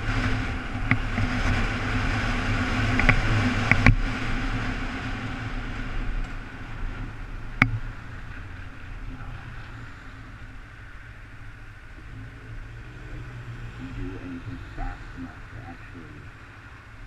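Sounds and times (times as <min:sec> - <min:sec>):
sharp ticks and knocks: 0:03.0 - 0:04.0, 0:07.6 - 0:08.5.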